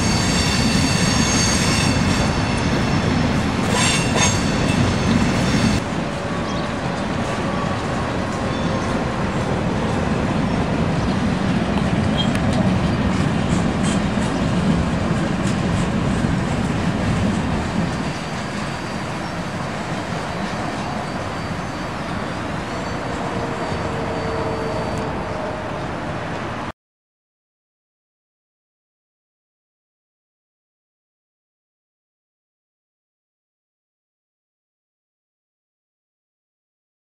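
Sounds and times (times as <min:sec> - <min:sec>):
high-pitched wheel squeal: 0:00.0 - 0:05.8, 0:20.1 - 0:25.9
freight cars rumbling on rails: 0:00.0 - 0:26.7.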